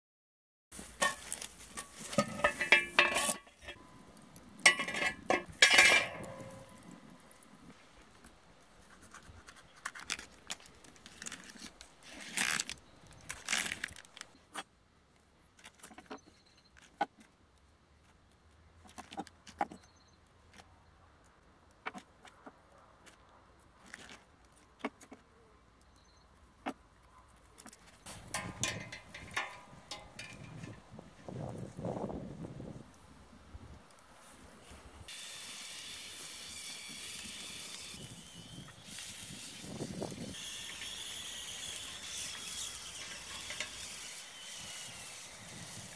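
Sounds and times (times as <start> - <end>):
plastic packaging crinkling: 9.8 - 14.4
plastic ripping: 9.8 - 14.4
metal skewers clicking: 28.1 - 30.8.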